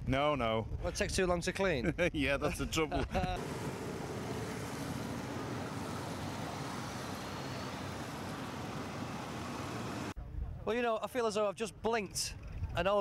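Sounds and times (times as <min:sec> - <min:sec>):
many motorcycle engines running: 0:03.4 - 0:10.2.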